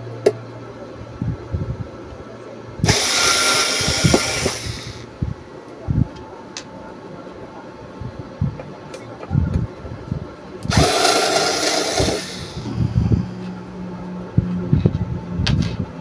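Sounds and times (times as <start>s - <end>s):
electric screwdriver running: 2.8s - 5.0s, 10.6s - 12.7s.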